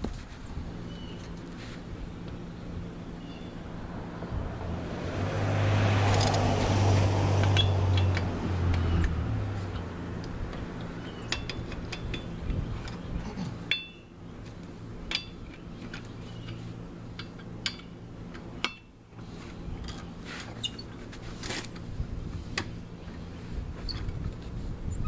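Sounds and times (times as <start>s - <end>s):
lug nuts clinking on steel wheel: 7.4s - 14.2s, 15.0s - 18.9s.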